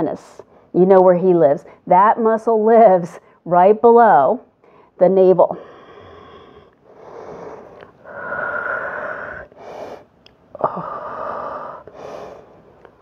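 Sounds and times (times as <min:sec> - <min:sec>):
woman breathing hard: 0:05.6 - 0:12.9.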